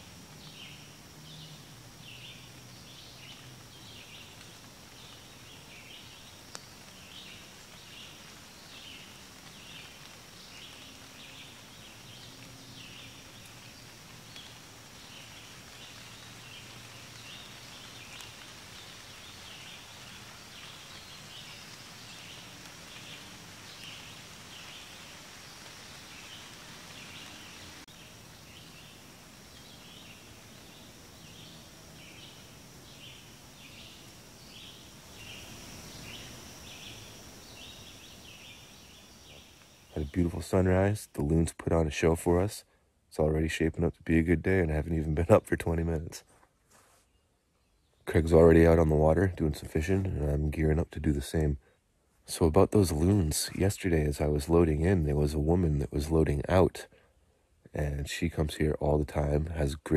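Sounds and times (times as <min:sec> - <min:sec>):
small birds chirping: 0:00.0 - 0:41.3.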